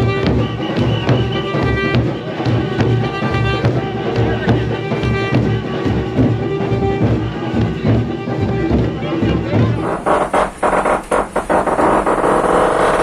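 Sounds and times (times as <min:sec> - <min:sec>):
drums pulsing beat: 0:00.0 - 0:13.0
held horn notes: 0:00.0 - 0:13.0
parade band playing: 0:00.0 - 0:13.0.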